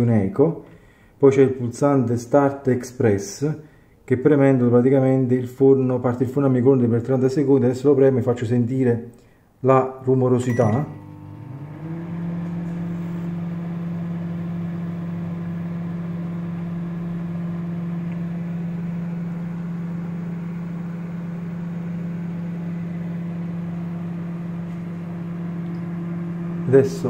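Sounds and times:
microwave oven humming: 10.5s - 27.0s.

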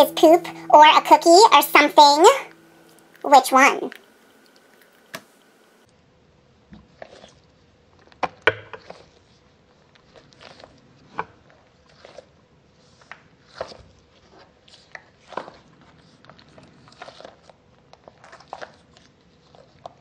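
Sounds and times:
squishy toy squelching: 6.8s - 20.0s.

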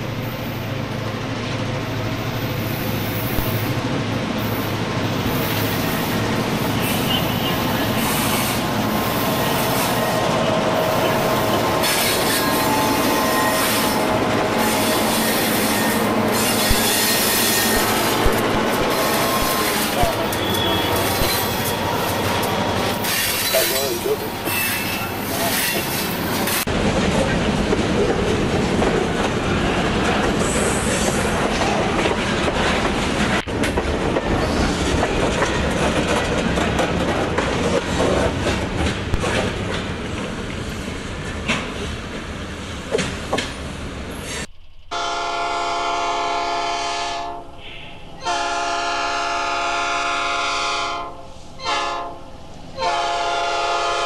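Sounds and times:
model train rolling on rails: 4.4s - 42.3s.

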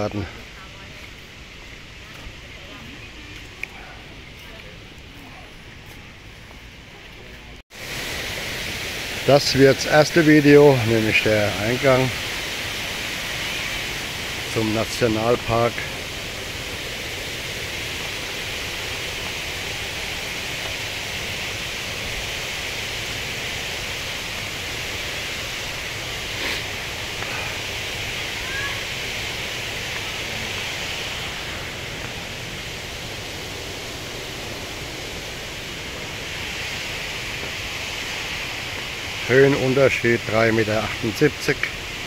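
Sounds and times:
waterfall rushing: 0.0s - 5.9s, 7.5s - 42.0s.

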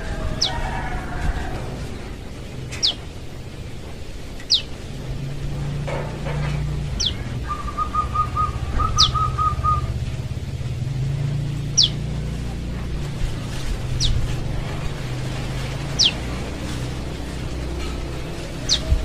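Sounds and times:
steady low hum: 0.0s - 19.0s
bird whistling sharp high notes: 7.4s - 9.9s.

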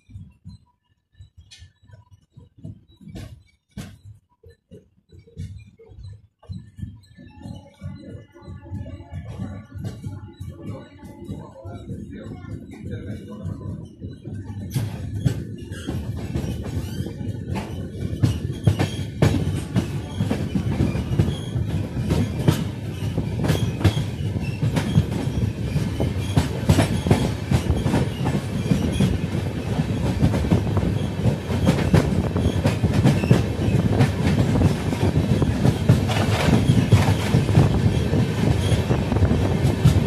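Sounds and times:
low train rumble: 5.5s - 40.0s
train wheels clattering over rail joints: 11.2s - 40.0s.

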